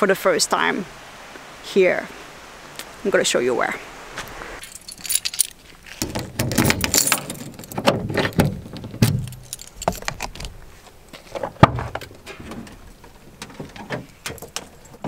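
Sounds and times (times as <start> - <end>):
keys jangling in lock: 4.6 - 5.6, 6.4 - 7.8, 9.1 - 10.5.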